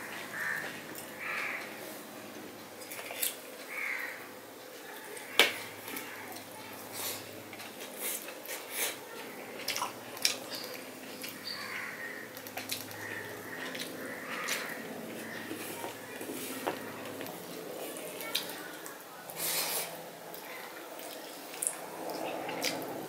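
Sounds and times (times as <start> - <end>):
chewing: 4.9 - 23.0.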